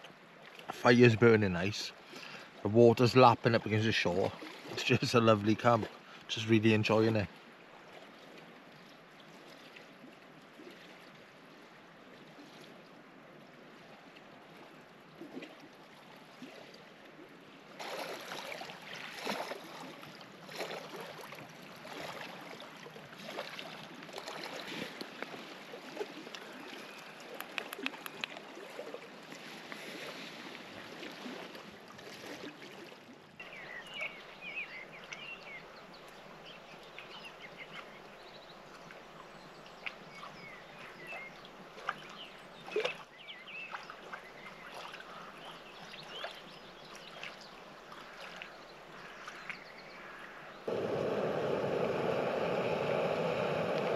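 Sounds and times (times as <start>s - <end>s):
small waves lapping on shore: 0.0s - 53.9s
short bird calls: 48.0s - 53.9s.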